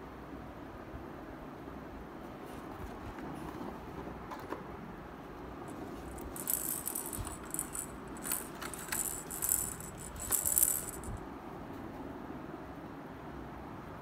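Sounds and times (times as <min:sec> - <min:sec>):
plastic toy rattling and clicking: 0:06.0 - 0:11.2.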